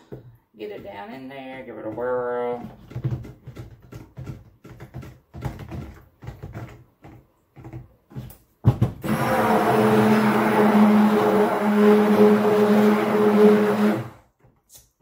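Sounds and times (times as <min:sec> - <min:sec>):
blender knocking against plastic tub: 0:08.6 - 0:14.1
blender motor humming: 0:09.0 - 0:14.2.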